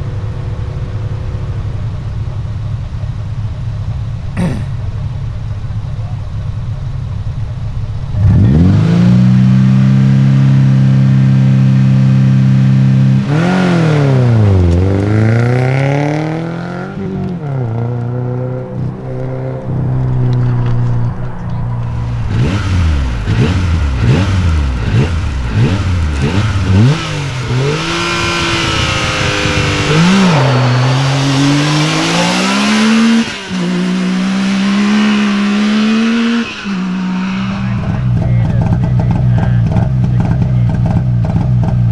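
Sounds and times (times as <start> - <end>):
rally car engine revving: 0.0 - 41.9
side-by-side engine blipping revs: 8.0 - 21.2, 21.8 - 41.9.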